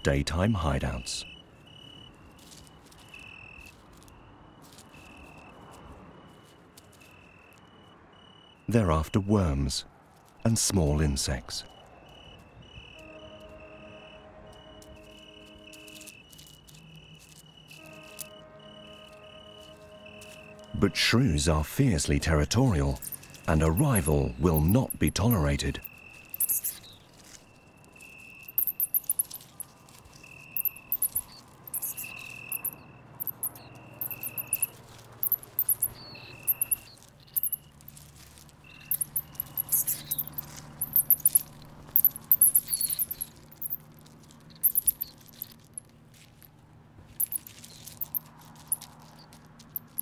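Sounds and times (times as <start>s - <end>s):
shrews squeaking and chittering: 22.8s - 46.3s, 47.2s - 50.0s
even repeated chirp: 22.9s - 26.9s, 28.0s - 29.6s, 30.5s - 37.7s, 38.7s - 43.8s, 44.5s - 45.5s, 47.2s - 48.8s.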